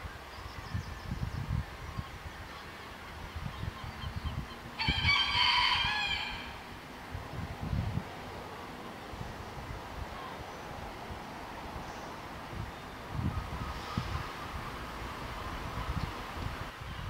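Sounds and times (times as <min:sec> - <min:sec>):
rooster crowing: 0:04.8 - 0:06.7.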